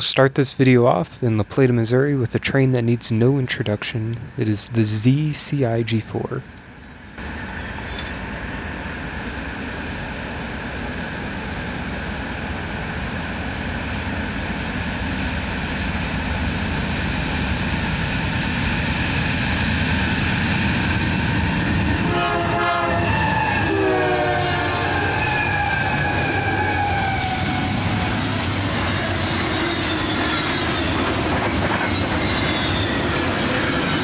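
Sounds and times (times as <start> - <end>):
diesel locomotive drone: 0.0 - 34.0
train rolling noise: 0.0 - 34.0
multi-note train horn: 21.9 - 28.3, 28.9 - 30.9.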